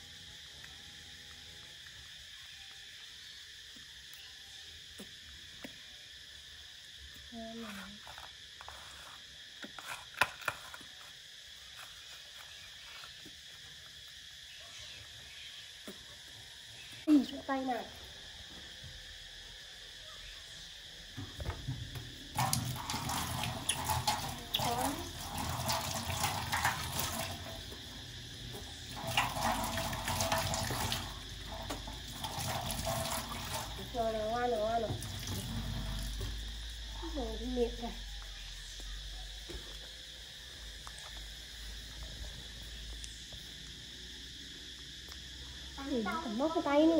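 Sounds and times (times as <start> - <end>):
tap running into a metal sink: 21.2 - 27.6, 28.9 - 33.8.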